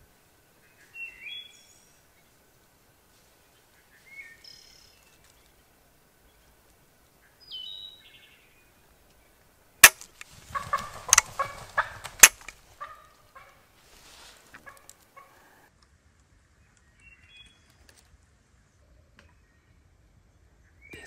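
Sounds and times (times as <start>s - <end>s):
songbirds chirping: 0.0s - 21.0s
shotgun action metallic clicks: 9.8s - 10.3s, 11.1s - 11.3s, 12.2s - 12.6s
turkey calling: 9.8s - 13.7s
rustling: 9.8s - 15.4s.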